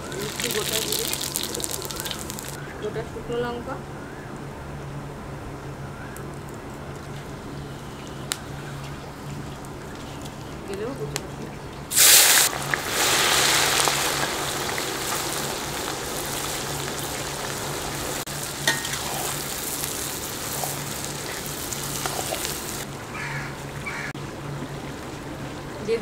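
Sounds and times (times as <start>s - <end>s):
onions sizzling in hot oil: 0.0s - 2.6s, 11.9s - 23.4s.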